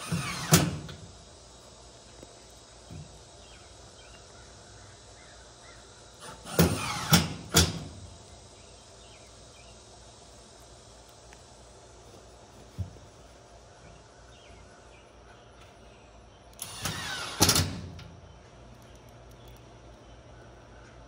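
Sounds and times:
cordless drill driving screws into metal: 0.0 - 1.1, 6.2 - 8.0, 16.6 - 18.1.

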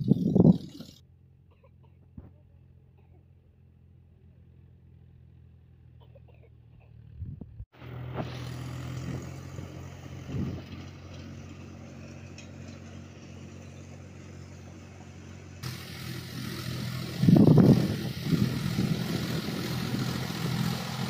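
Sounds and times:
tractor diesel engine running: 0.0 - 1.4, 7.8 - 21.0.

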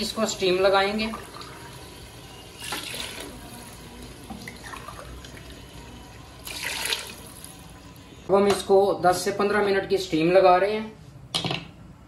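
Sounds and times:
water splashing into pot: 2.5 - 3.4, 6.4 - 7.5.

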